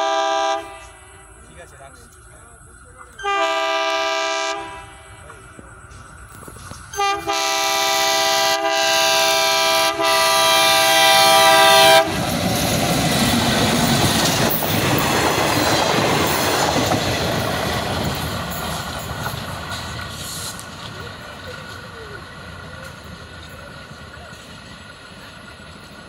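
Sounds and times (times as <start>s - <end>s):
locomotive horn blast: 0.0s - 1.2s, 3.2s - 5.2s, 7.0s - 12.2s
train engine and wheel noise: 0.0s - 26.0s.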